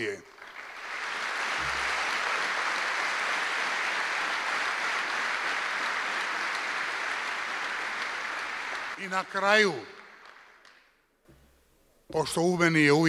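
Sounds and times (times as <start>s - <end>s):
large audience applauding: 0.0s - 11.0s.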